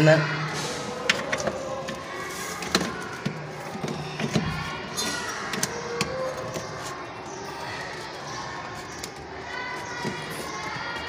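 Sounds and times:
sharp plastic clicks: 1.0 - 11.0.

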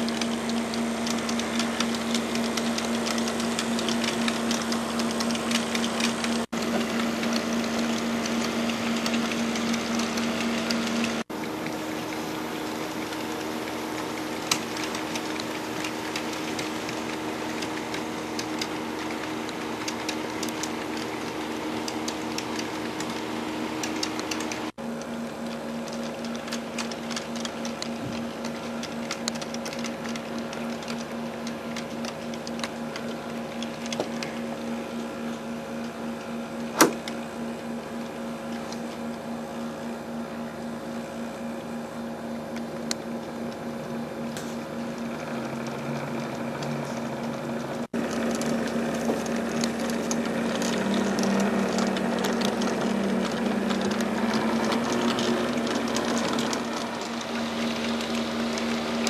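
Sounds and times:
model train motor whirring: 0.0 - 24.8, 25.4 - 34.8, 42.6 - 59.0
wheels clicking on track: 0.0 - 39.6, 42.4 - 59.0
sharp click: 36.7 - 37.2.

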